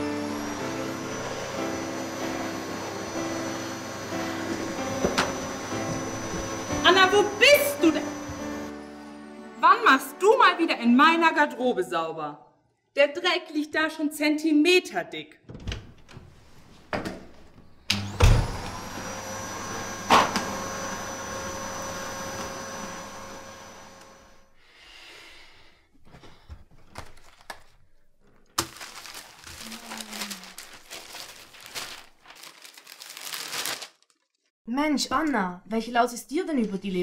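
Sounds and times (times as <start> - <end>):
vacuum cleaner motor running: 0.0 - 8.7, 17.9 - 24.5
rustling: 28.6 - 34.4.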